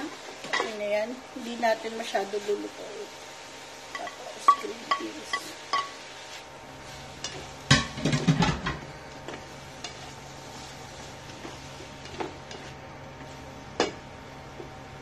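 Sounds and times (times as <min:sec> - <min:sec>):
vegetables sizzling: 0:00.0 - 0:15.0
spatula scraping a wok: 0:05.3 - 0:08.1, 0:09.4 - 0:13.5.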